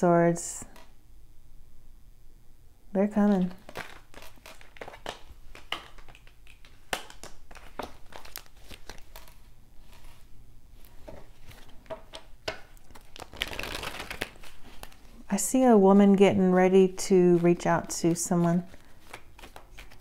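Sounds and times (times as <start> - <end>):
cards shuffled on stone: 3.6 - 10.2, 12.9 - 15.0, 17.8 - 20.0.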